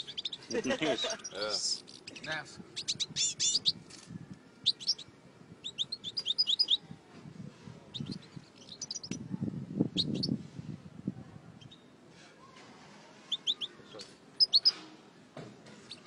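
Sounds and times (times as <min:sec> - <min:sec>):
finches chirping: 0:00.0 - 0:03.8, 0:04.6 - 0:06.8, 0:07.9 - 0:09.2, 0:10.0 - 0:10.4, 0:13.3 - 0:14.8.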